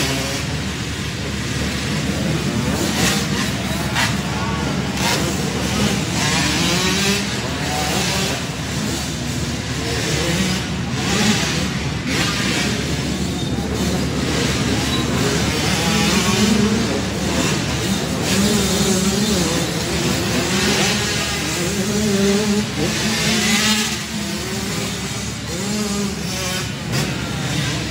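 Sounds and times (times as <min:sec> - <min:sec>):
motocross bike engines revving: 0:00.0 - 0:27.9.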